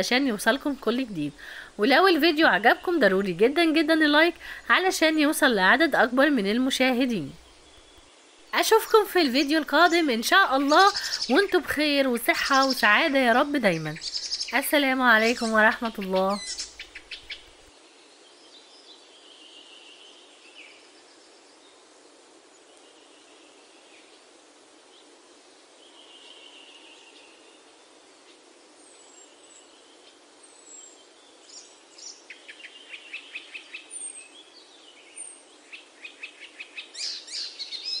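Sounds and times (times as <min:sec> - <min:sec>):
birds chirping: 0:00.0 - 0:21.8
steady hiss: 0:00.0 - 0:38.0.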